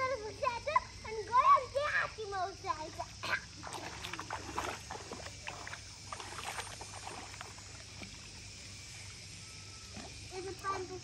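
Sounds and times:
faint low hum: 0.0s - 11.0s
water splashing and sloshing: 2.6s - 9.2s.

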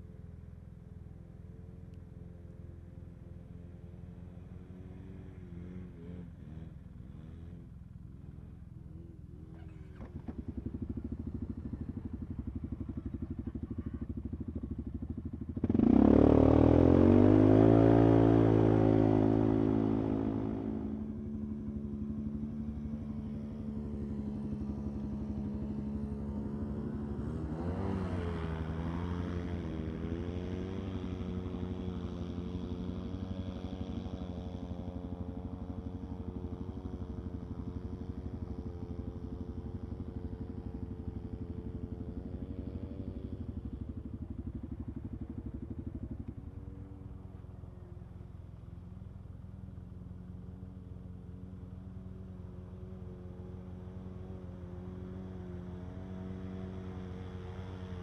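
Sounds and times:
off-road vehicle engines revving: 15.6s - 21.1s.

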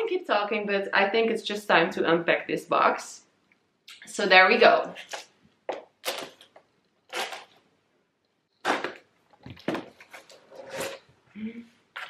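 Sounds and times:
cardboard and tape scraping: 7.1s - 7.6s, 9.6s - 11.1s.

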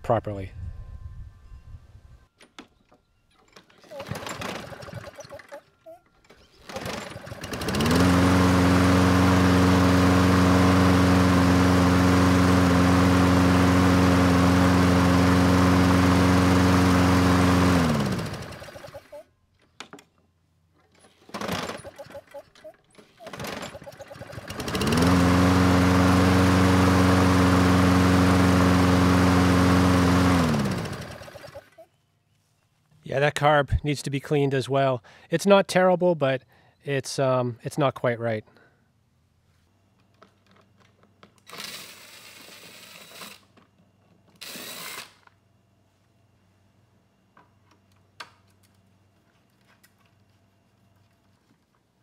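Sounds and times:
lawn mower engine running: 3.9s - 5.6s, 6.3s - 19.2s, 21.3s - 22.4s, 23.0s - 31.8s.

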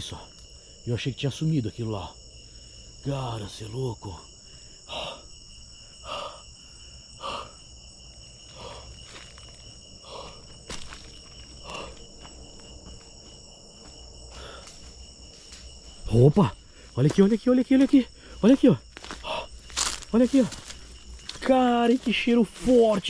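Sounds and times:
crickets trilling: 0.0s - 23.0s
footsteps crunching on dry leaves: 8.4s - 17.9s, 18.8s - 23.0s.

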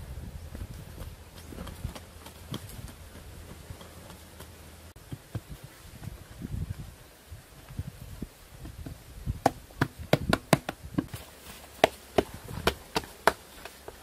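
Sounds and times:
soil scuffing: 11.0s - 14.0s.

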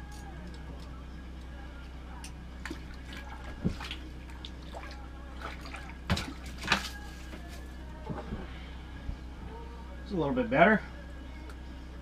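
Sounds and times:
water splashing and dripping: 2.6s - 7.0s.

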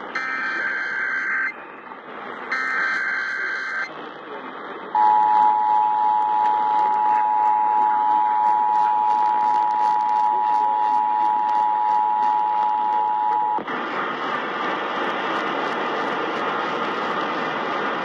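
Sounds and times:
radio static hiss: 0.0s - 18.0s
two-tone alarm through radio: 0.1s - 1.8s, 2.5s - 3.9s, 5.0s - 13.7s.

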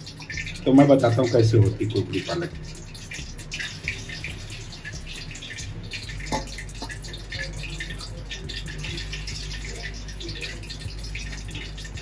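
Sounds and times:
wet squelches of dough mixing: 0.0s - 12.0s.

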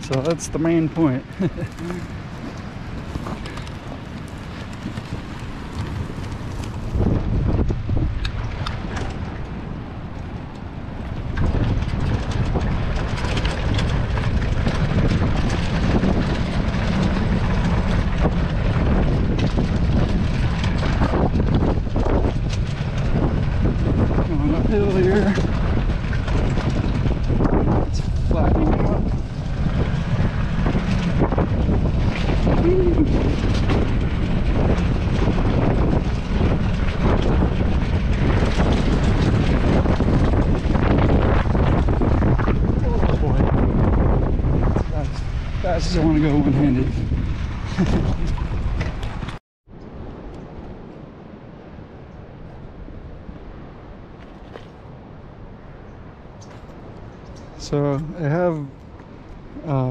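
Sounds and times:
wind on microphone: 0.0s - 59.9s
motorbike engine running: 11.2s - 49.4s.

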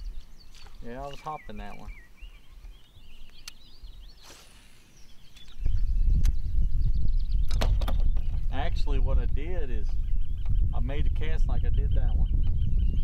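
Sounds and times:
faint birdsong: 0.0s - 13.0s
sharp clicks: 3.3s - 3.6s.

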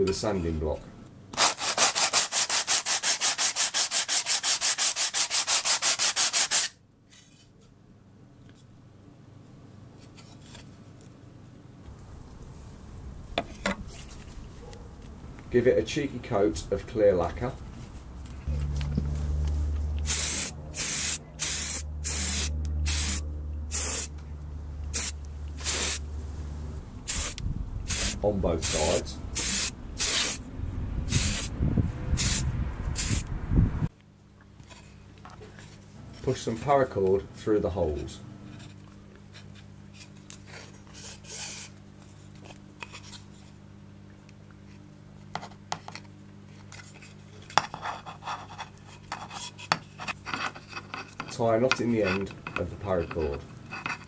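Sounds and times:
aerosol spray hissing: 20.0s - 24.1s, 25.0s - 26.0s, 27.1s - 30.4s, 31.1s - 31.5s, 32.2s - 32.4s, 33.0s - 33.2s.

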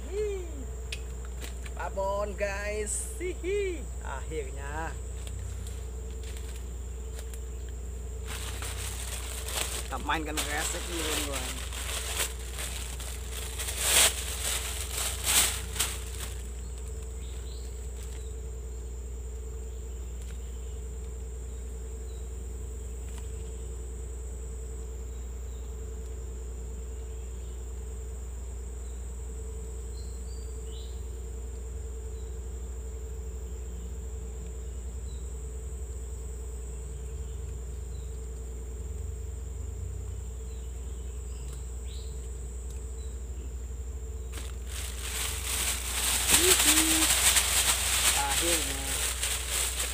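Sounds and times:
high-pitched insect buzz: 0.0s - 49.9s
low pulsing insect drone: 0.0s - 49.9s
plastic bag crinkling: 8.2s - 17.4s, 44.3s - 49.9s.

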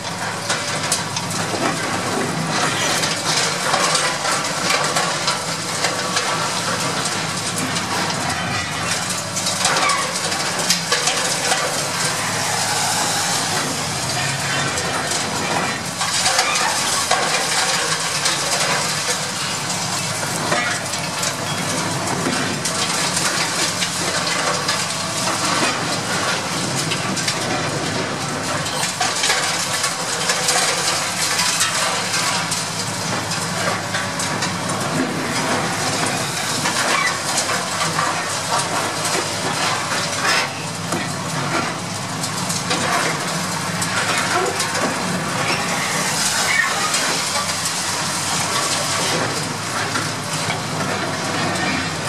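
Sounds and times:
diesel engine: 0.0s - 52.0s.

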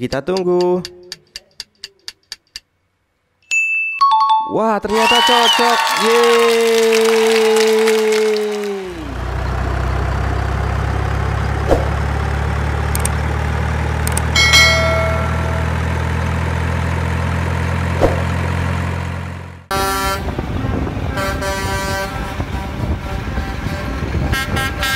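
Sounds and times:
street sound: 4.0s - 24.9s
heavy truck engine running: 7.9s - 24.9s
cement mixer truck horns tooting: 14.3s - 16.8s, 19.7s - 24.9s
truck horn toot: 19.7s - 24.9s.

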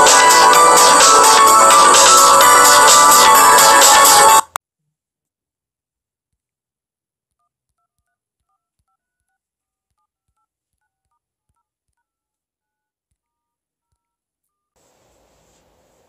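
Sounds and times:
steady hiss: 14.8s - 16.0s.

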